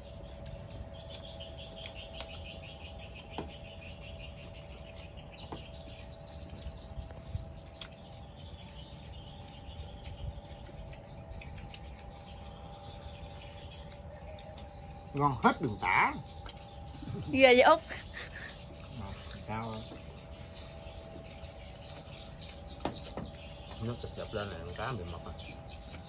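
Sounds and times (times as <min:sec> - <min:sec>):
birds trilling: 0:00.0 - 0:26.0
steady low hum: 0:00.0 - 0:26.0.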